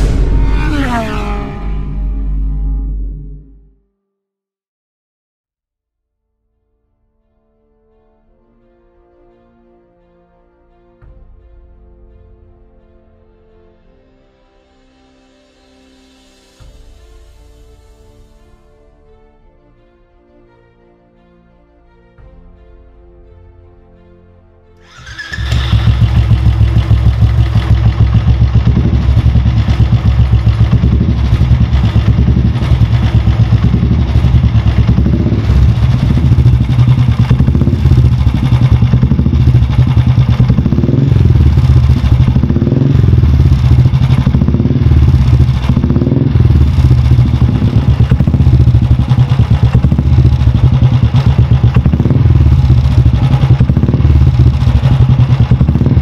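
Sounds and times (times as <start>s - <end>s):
motorcycle engine idling: 24.9s - 56.0s.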